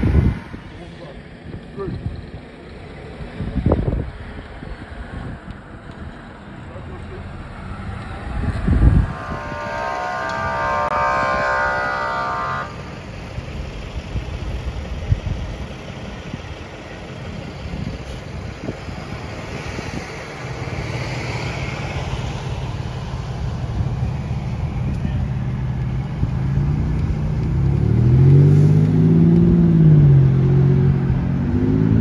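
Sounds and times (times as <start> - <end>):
low engine hum: 0.0 - 32.0
vehicles passing: 0.0 - 32.0
vehicle horn: 7.3 - 13.1.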